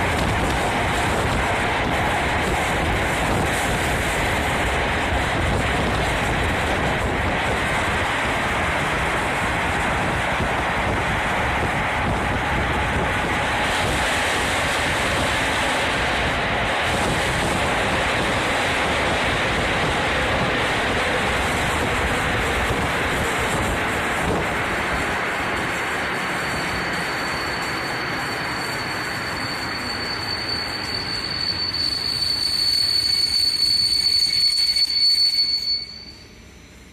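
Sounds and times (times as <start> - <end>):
wind buffeting microphone: 0.0 - 25.9
train running noise: 0.0 - 36.9
train brakes squealing: 25.6 - 36.9.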